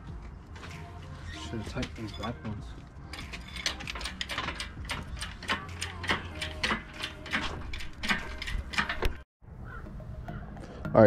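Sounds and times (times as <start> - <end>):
ratchet wrench clicking: 3.1 - 9.2.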